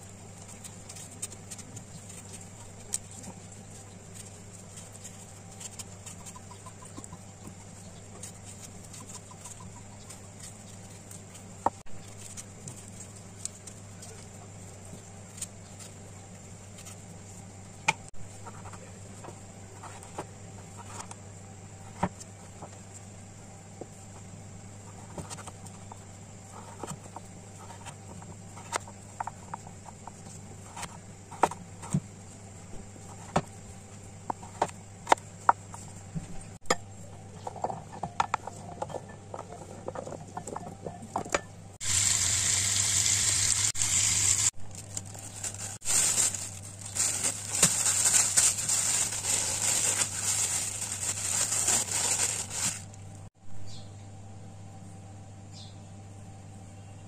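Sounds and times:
plastic bag crinkling: 43.7 - 53.3
loud dense rustling: 44.6 - 53.0.

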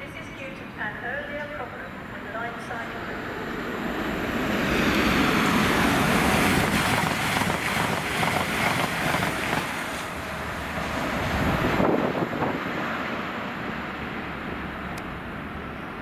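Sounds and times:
train passing at speed: 0.0 - 16.0.

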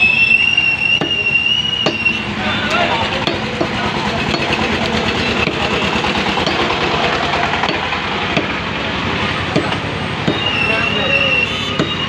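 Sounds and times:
small engine running: 3.0 - 9.2.

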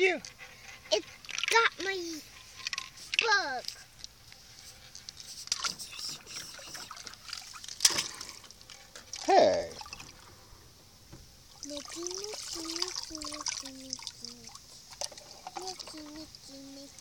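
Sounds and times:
water splashing in a pool: 5.4 - 10.6, 11.4 - 17.0.

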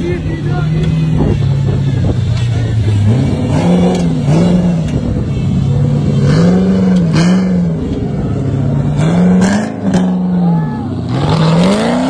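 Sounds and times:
buggy engine revving: 0.0 - 12.0.

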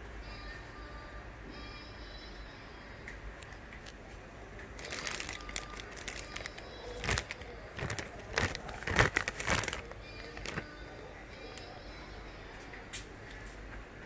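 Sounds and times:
plastic packaging crinkling: 4.7 - 10.8.

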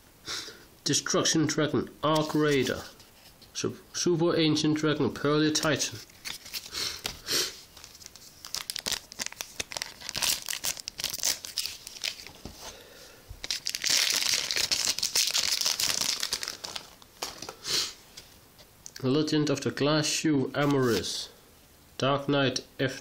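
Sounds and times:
foil wrapper crinkling and tearing: 5.6 - 12.4, 13.4 - 17.6.

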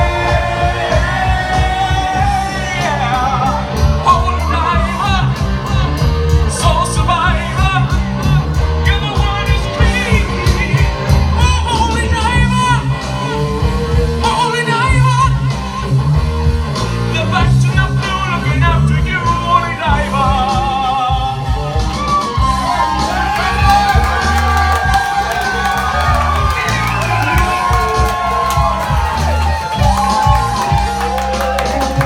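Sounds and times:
man singing into a microphone: 0.0 - 15.6, 17.1 - 22.1
bass guitar: 0.0 - 32.0
drums: 0.0 - 32.0.

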